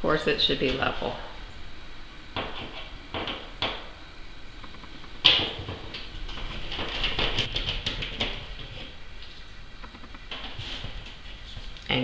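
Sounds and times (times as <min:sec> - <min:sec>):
metal plate knocking against wall: 0:02.4 - 0:04.0, 0:05.2 - 0:08.9.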